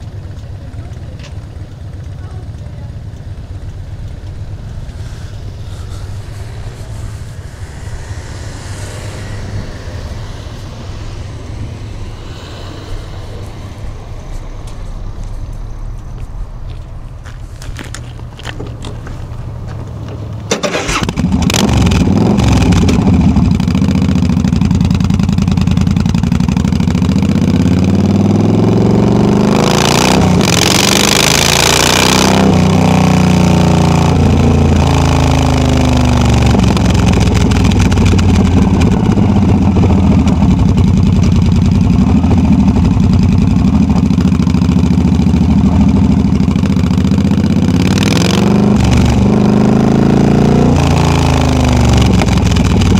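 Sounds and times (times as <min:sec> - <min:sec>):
motorcycle engine revving: 0:00.0 - 0:15.8, 0:20.3 - 0:52.9
wind hiss: 0:03.2 - 0:21.1.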